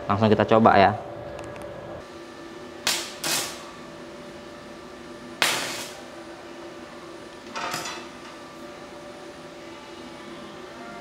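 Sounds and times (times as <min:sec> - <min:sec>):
welding arc crackling: 0:02.8 - 0:03.7, 0:05.4 - 0:06.2.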